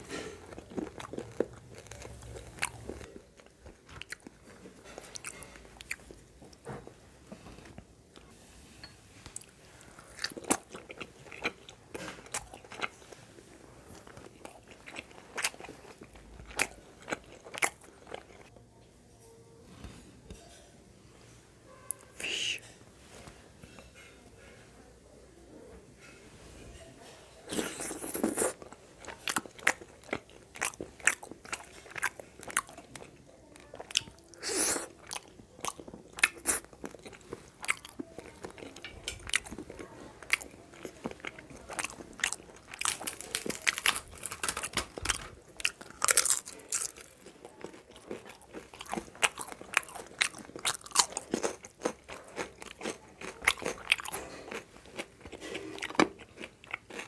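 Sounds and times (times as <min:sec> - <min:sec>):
crunchy chewing: 0:00.0 - 0:06.6, 0:09.4 - 0:18.5, 0:27.5 - 0:57.0.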